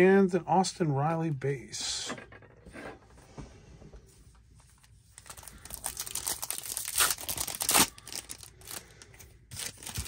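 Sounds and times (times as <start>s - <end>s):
wrapper crinkling and tearing: 4.8s - 10.0s.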